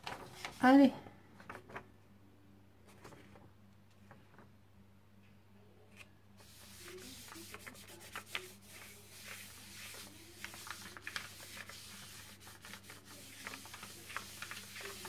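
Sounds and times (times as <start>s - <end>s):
palm rubbing paper: 6.4s - 15.0s.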